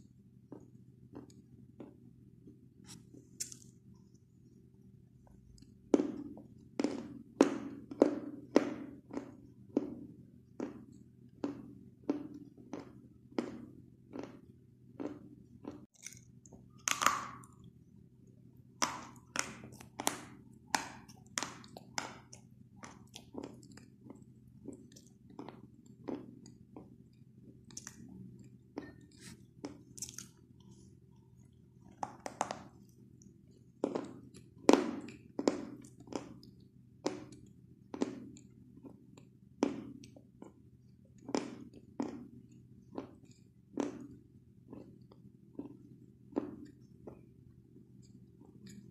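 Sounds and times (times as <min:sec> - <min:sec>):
chalk crunching while chewing: 0:27.6 - 0:30.8.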